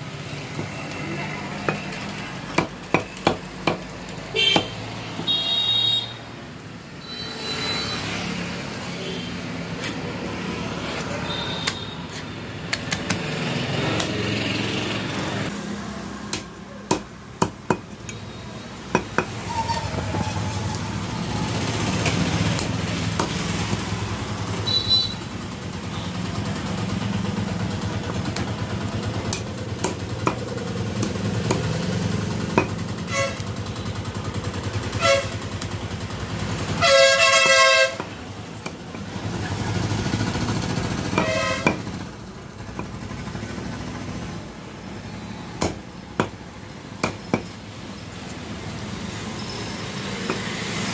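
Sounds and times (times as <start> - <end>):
street traffic: 0.0 - 50.9
vehicle horn: 4.3 - 6.2, 11.2 - 12.1, 33.1 - 33.5, 34.9 - 35.4, 36.8 - 38.1, 41.2 - 41.8.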